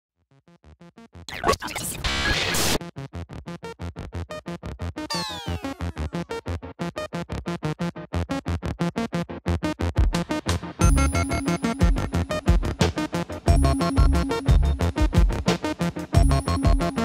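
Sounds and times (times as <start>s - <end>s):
electronic pulsing beat: 10.8s - 17.0s.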